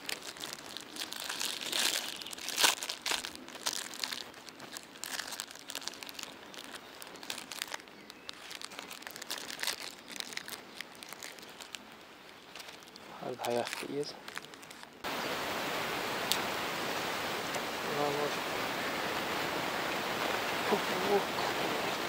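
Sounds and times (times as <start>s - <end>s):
rustling and crinkling: 0.0s - 15.1s.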